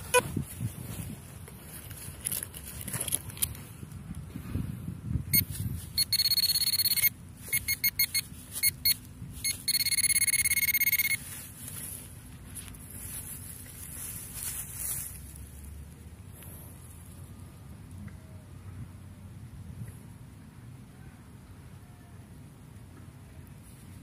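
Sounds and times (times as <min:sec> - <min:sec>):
metal detector beeping: 0:00.0 - 0:00.3, 0:05.3 - 0:11.5.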